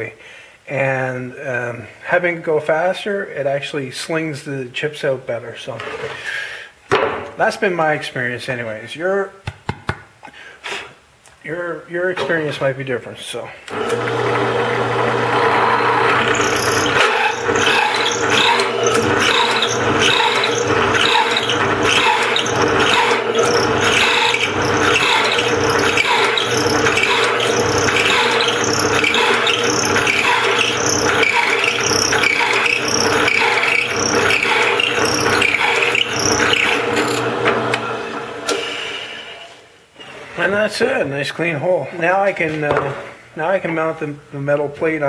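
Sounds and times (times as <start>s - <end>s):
drill press hole saw boring wood: 13.7s - 39.1s.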